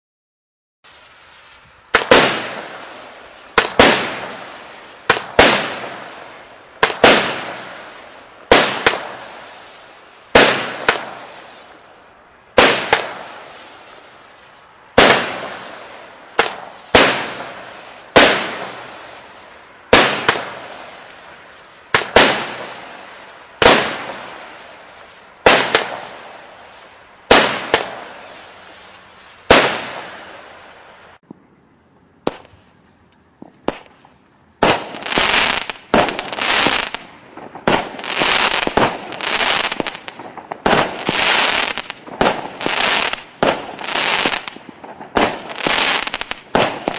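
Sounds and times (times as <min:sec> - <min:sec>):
crackling hiss of fireworks: 0:00.8 - 0:46.9
firework bangs: 0:00.9 - 0:31.4, 0:32.2 - 0:32.6, 0:33.4 - 0:46.9.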